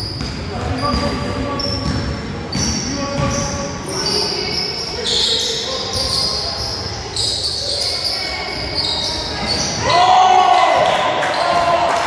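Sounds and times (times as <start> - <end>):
sneakers squeaking: 0.0 - 10.1, 11.1 - 11.9
basketball bouncing: 1.8 - 3.5.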